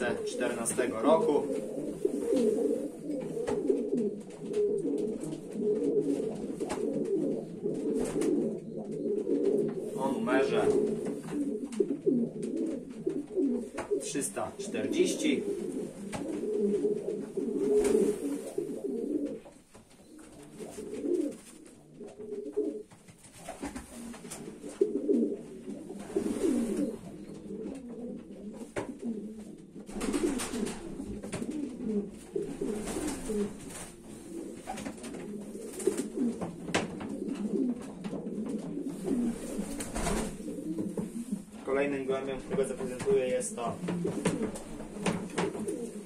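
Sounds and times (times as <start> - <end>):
pigeons cooing: 0.0 - 46.0
knocks and rustles: 34.6 - 41.3, 42.4 - 45.9.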